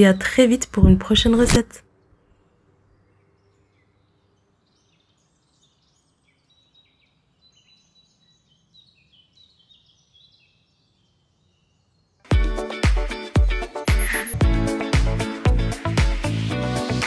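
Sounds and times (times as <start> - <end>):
faint high bird chirps: 2.0 - 12.3, 13.9 - 14.4.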